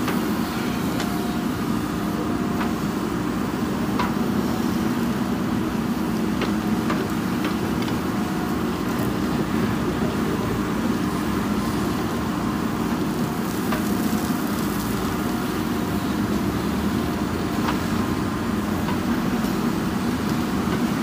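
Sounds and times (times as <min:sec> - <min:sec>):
diesel engine under load: 0:00.0 - 0:21.0.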